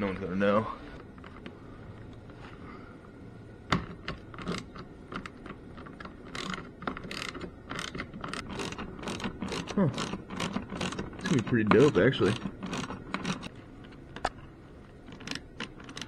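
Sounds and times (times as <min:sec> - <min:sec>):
ratcheting screwdriver strokes: 0:06.3 - 0:13.5.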